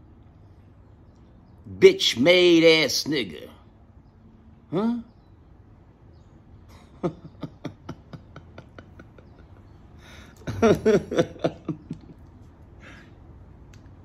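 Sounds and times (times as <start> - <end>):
man laughing: 6.7 - 13.0.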